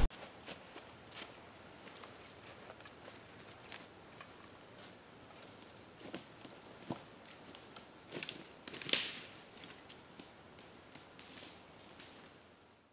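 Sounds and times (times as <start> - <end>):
twig cracking: 7.5 - 9.3.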